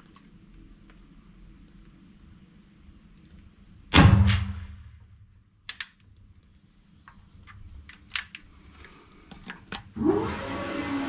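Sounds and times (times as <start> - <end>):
rifle shot: 3.9 - 5.0.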